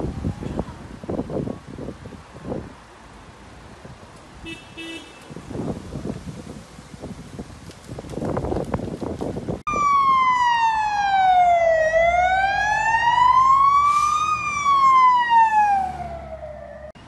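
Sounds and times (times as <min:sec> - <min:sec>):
emergency siren wailing: 0:09.7 - 0:17.0.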